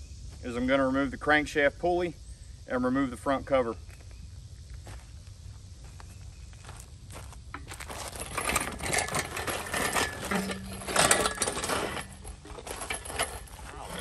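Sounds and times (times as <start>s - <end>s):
metal clinking and rattling: 7.5s - 14.0s.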